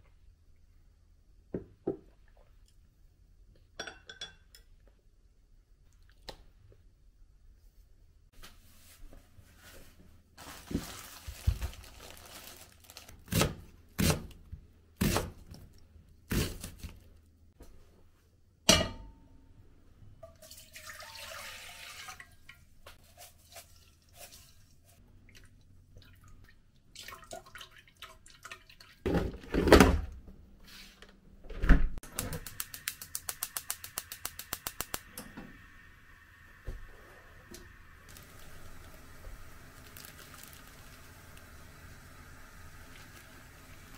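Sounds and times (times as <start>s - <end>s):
water pouring: 20.2s - 22.7s, 38.0s - 43.9s.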